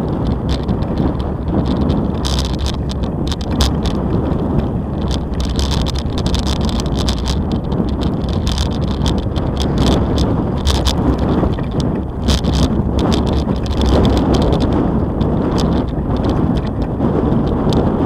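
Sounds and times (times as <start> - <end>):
bicycle clicks and rattles: 0.0 - 18.0
bicycle tyres rumbling on concrete: 0.0 - 18.0.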